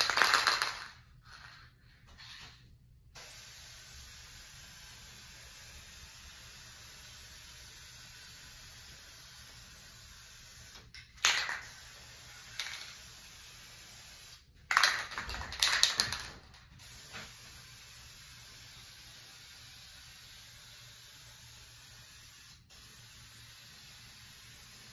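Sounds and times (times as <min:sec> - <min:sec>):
aerosol can spraying: 0:03.2 - 0:15.0, 0:16.8 - 0:24.9.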